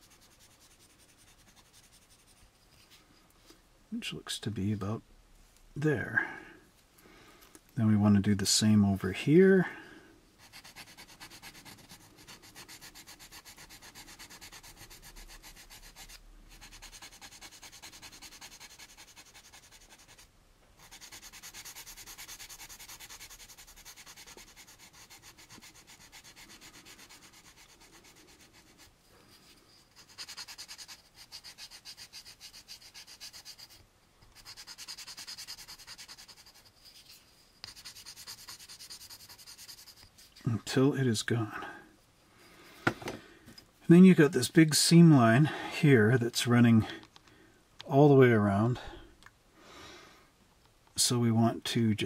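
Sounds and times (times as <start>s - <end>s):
sandpaper rubbing on plastic: 0.0s - 2.4s, 10.4s - 40.6s.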